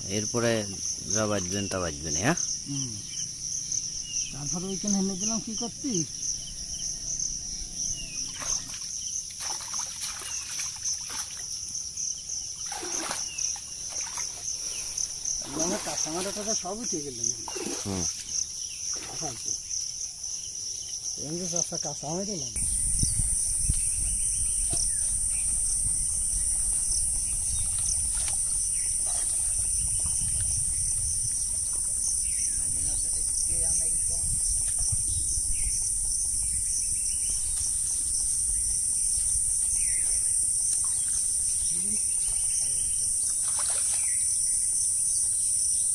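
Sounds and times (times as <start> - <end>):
insect chorus: 0.0 - 45.9
muddy water splashing: 8.3 - 11.9, 12.6 - 19.6, 23.3 - 35.1, 36.2 - 44.3.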